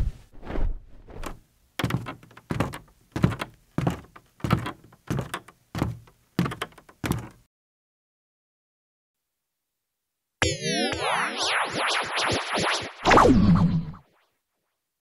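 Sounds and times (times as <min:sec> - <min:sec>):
dull thumps: 0:00.0 - 0:07.4.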